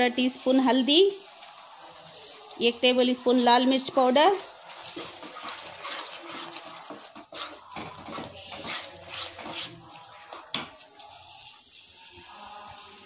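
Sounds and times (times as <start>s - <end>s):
spatula scraping frying paste: 3.8s - 13.0s.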